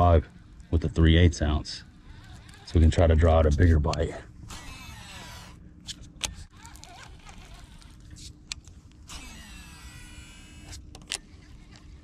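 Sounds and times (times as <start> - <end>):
reel spool whirring: 0.0 - 3.4, 4.4 - 5.6, 6.5 - 8.3, 9.0 - 12.0
steady low hum: 0.0 - 12.0.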